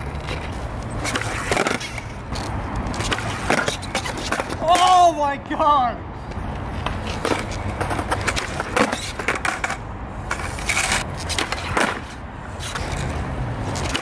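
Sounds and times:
skateboard clacks and scrapes: 0:00.0 - 0:05.1, 0:06.6 - 0:14.0
skateboard wheels rolling on concrete: 0:00.0 - 0:14.0.

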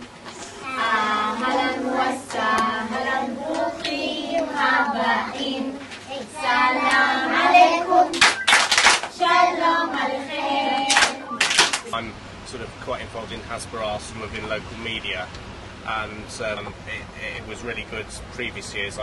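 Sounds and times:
children singing: 0:00.6 - 0:08.4, 0:09.1 - 0:11.4
quick hand claps: 0:08.2 - 0:09.2, 0:10.9 - 0:11.9.

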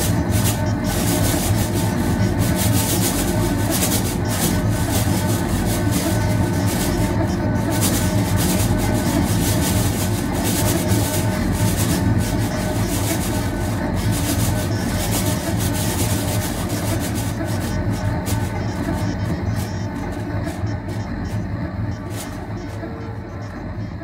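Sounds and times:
low hum: 0:00.0 - 0:24.0
thin steady tones: 0:00.0 - 0:24.0.

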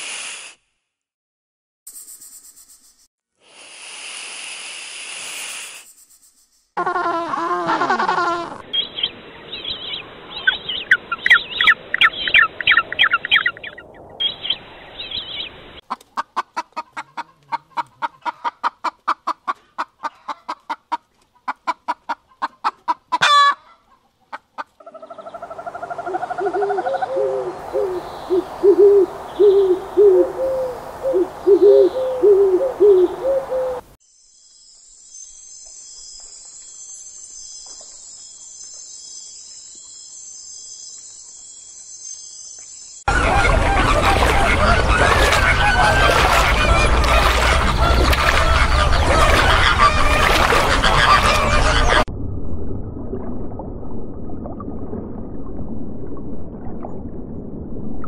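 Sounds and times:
high insect trill: 0:01.9 - 0:03.1, 0:34.0 - 0:43.1
birds chirping: 0:08.7 - 0:15.8, 0:37.5 - 0:52.0
low fowl-like calls: 0:43.1 - 0:52.1.

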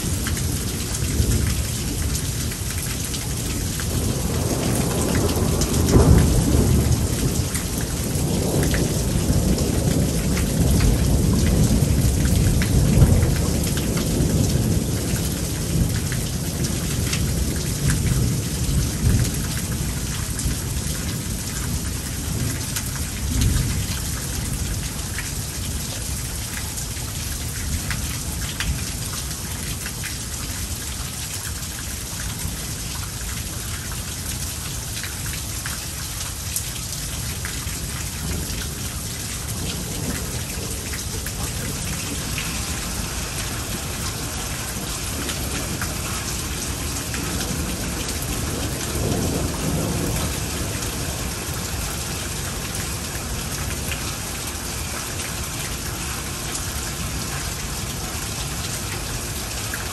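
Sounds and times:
heavy rain pouring: 0:00.0 - 0:59.9
thunder rumbling: 0:03.5 - 0:14.9, 0:38.2 - 0:54.5.

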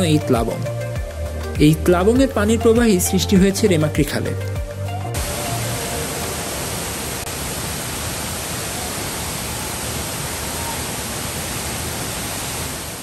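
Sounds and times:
waterfall rushing: 0:05.2 - 0:13.0.

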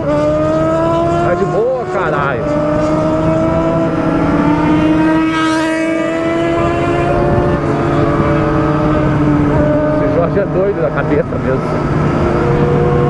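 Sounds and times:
vehicle engine cruising: 0:00.0 - 0:13.0.

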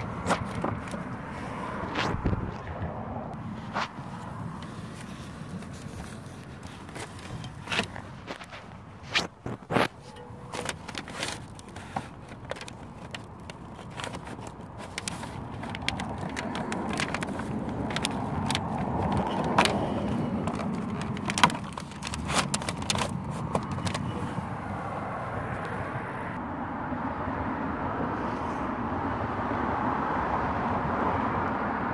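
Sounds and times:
handling clicks and scrapes: 0:00.0 - 0:24.8
outdoor background noise: 0:00.0 - 0:31.9.

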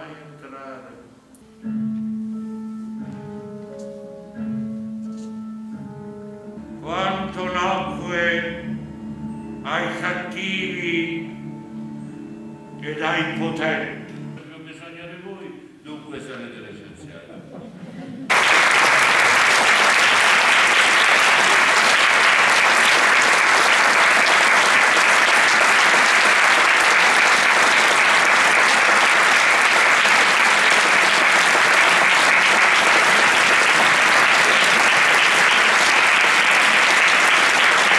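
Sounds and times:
audience applauding: 0:18.3 - 0:37.9.

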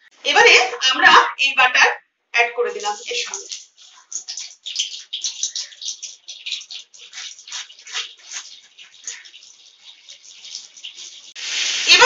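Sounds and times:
butter sizzling in hot oil: 0:02.8 - 0:12.0.

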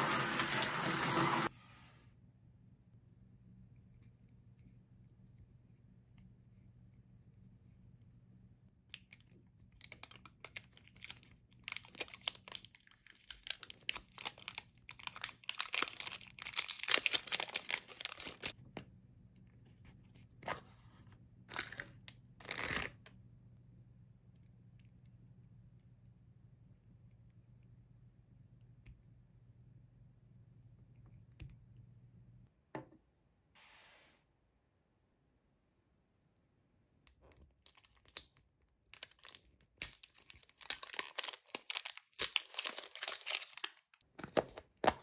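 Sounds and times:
plastic wrap crinkling and tearing: 0:08.9 - 0:18.6, 0:21.5 - 0:23.0, 0:37.6 - 0:44.0.

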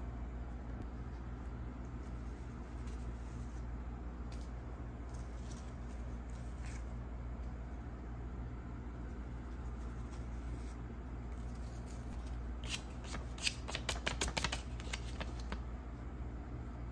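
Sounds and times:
steady low hum: 0:00.0 - 0:16.9
paper cutouts scratching and tapping: 0:12.6 - 0:15.6.

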